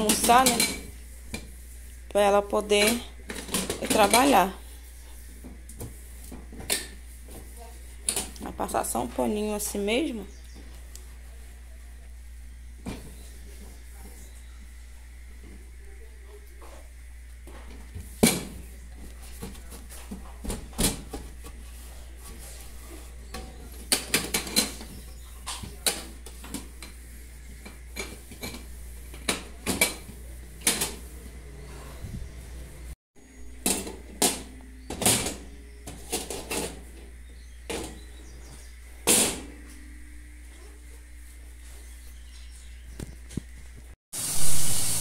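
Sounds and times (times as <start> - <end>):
cloth wiping stove: 0.3 - 2.9, 21.2 - 23.9.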